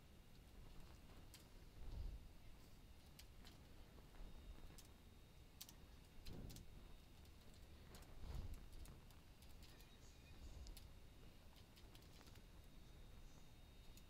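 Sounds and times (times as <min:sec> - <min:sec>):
low steady hum: 0:00.0 - 0:14.0
soft low rumbles: 0:00.2 - 0:05.0, 0:05.8 - 0:14.0.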